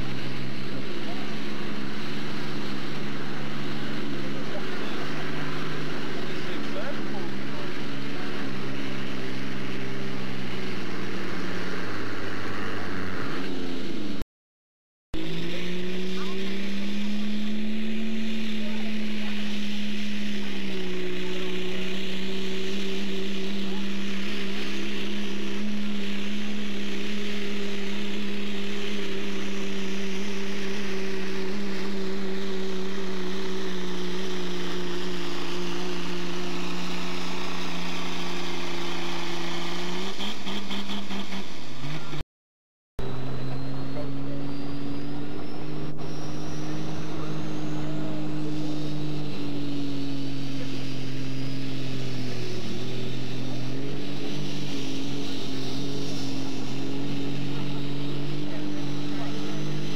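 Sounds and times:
diesel engine droning at full throttle: 0.0 - 14.2, 15.2 - 42.2, 43.0 - 59.9
pickup engine droning: 0.0 - 14.2, 15.2 - 42.2, 43.0 - 59.9
faint rising whine: 15.2 - 40.4, 43.0 - 59.9.

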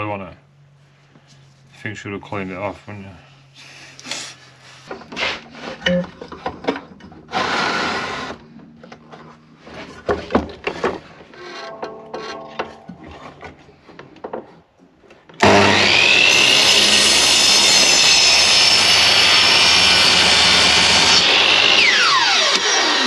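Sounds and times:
mitre saw cutting timber: 7.3 - 8.5, 11.4 - 13.2, 15.4 - 23.0.

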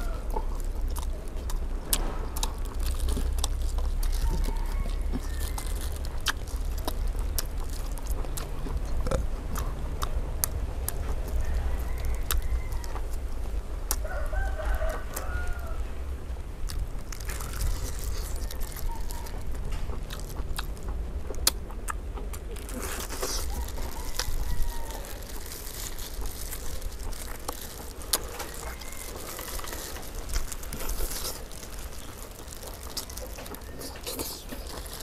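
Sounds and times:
roosters crowing: 0.0 - 0.6, 3.7 - 6.2, 11.2 - 13.3, 14.0 - 16.1, 17.2 - 20.2, 22.7 - 35.0
wet chewing and lip-smacking: 0.0 - 15.8, 16.4 - 35.0
steady low rumble: 0.0 - 35.0.

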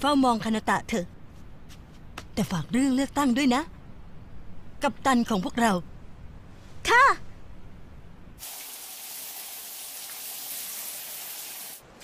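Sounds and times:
shower water spraying: 8.4 - 11.8.

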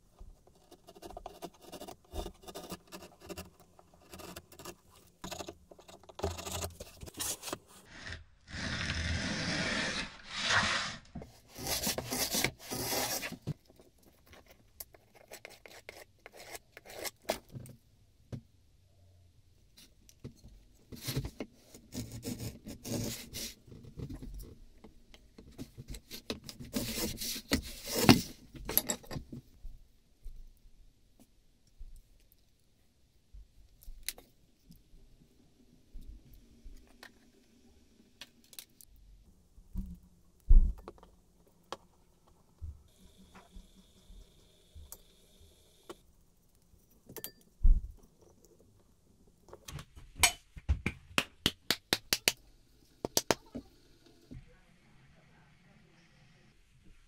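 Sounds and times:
blade scraping wood: 0.7 - 13.4.

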